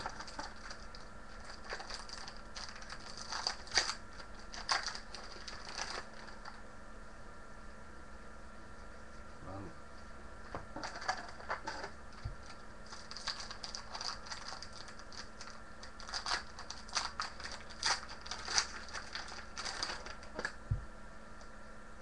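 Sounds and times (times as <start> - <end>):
cards and foil wrappers crinkling: 0.0 - 6.6, 10.8 - 20.6.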